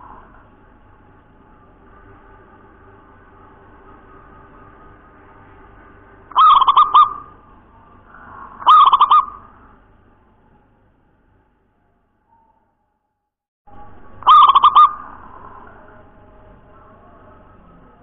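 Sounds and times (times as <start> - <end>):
dove cooing: 6.3 - 7.5, 8.1 - 9.7, 14.2 - 16.1.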